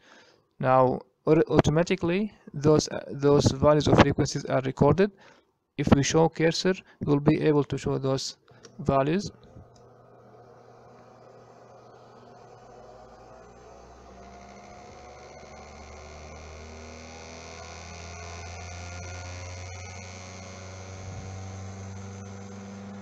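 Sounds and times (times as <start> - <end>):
electric motor spinning up: 8.8 - 23.0.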